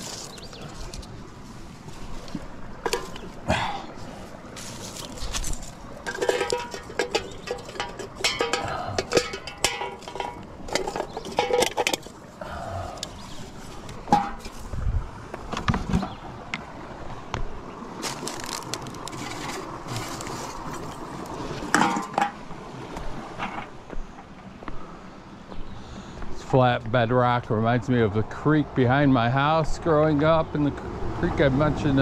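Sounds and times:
dry twigs rustling and snapping: 0:00.0 - 0:01.2, 0:04.2 - 0:12.3, 0:18.0 - 0:21.6.

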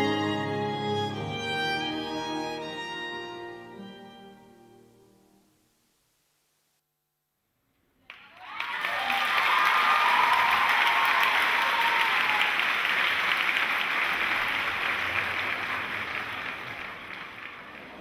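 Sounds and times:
audience applauding: 0:08.0 - 0:18.0.

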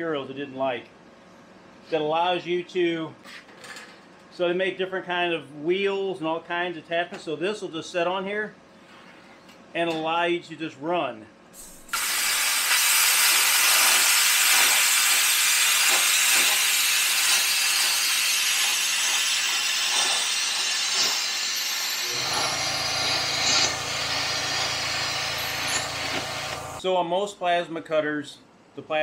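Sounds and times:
plasma cutter hissing: 0:11.6 - 0:26.8
low hum: 0:21.7 - 0:26.8.

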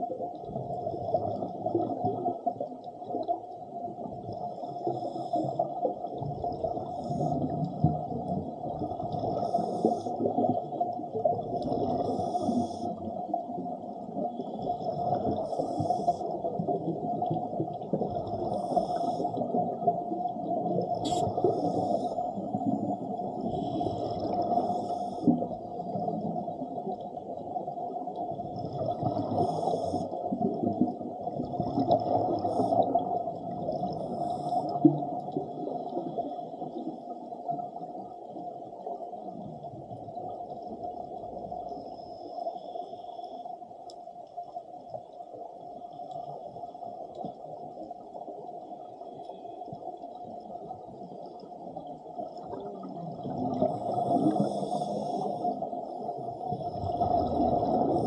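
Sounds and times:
underwater water noise: 0:00.0 - 0:58.0
regulator breathing and bubbling: 0:14.3 - 0:27.0, 0:52.3 - 0:58.0.

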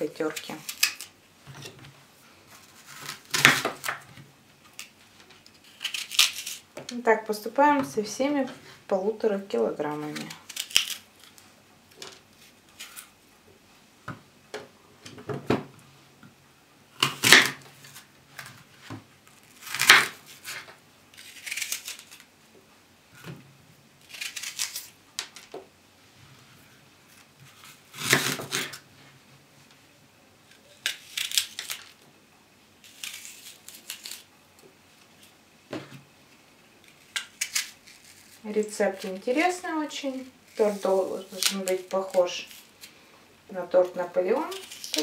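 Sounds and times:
knife slicing crisp apples: 0:02.6 - 0:04.0, 0:19.5 - 0:22.2, 0:27.1 - 0:28.8.

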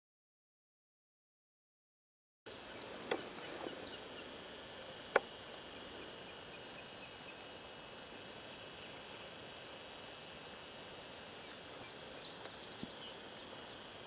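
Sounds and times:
small birds chirping: 0:02.5 - 0:09.6, 0:10.6 - 0:14.0
steady hiss: 0:02.5 - 0:14.0.

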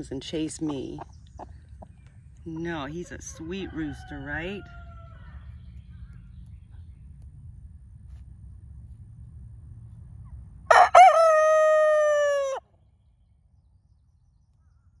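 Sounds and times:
young rooster crowing: 0:03.3 - 0:05.5, 0:10.7 - 0:12.6.

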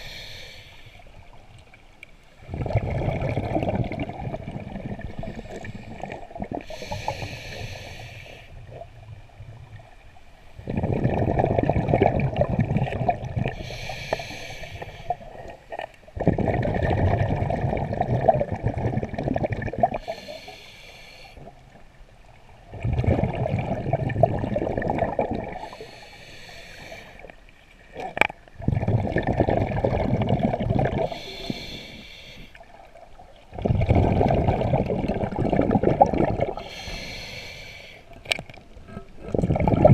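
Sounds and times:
regulator inhale hiss: 0:00.0 - 0:01.3, 0:05.2 - 0:08.6, 0:13.5 - 0:15.5, 0:20.0 - 0:21.5, 0:25.6 - 0:27.4, 0:31.0 - 0:32.7, 0:36.6 - 0:38.2
exhaled bubbles rushing: 0:02.4 - 0:06.8, 0:10.6 - 0:13.6, 0:15.4 - 0:20.1, 0:22.7 - 0:25.7, 0:28.6 - 0:31.2, 0:33.4 - 0:36.6, 0:39.3 - 0:39.9.

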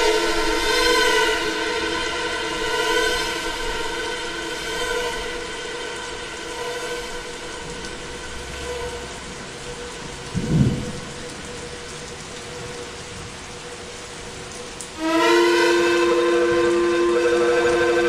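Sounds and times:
low rumbling swell: 0:00.0 - 0:11.9
layered synthesizer drone: 0:00.0 - 0:18.0
rain-like hiss: 0:00.0 - 0:18.0.

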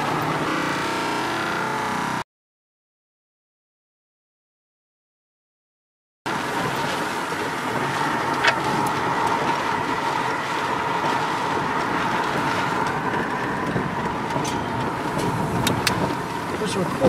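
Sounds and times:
car cabin road noise: 0:00.0 - 0:02.2, 0:06.3 - 0:17.0.

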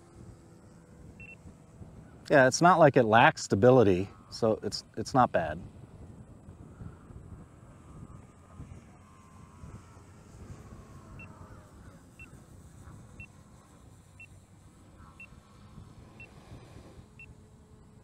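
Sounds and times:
model plane motor whine: 0:00.0 - 0:18.0.

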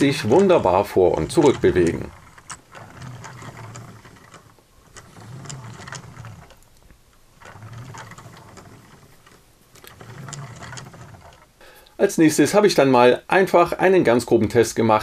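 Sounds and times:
toy train wheels rumbling and clicking: 0:00.0 - 0:11.8.

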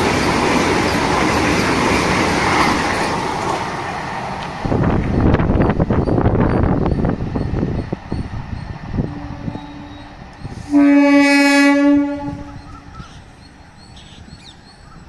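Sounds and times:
train rumble: 0:00.0 - 0:15.0
train horn blast: 0:09.0 - 0:12.9.

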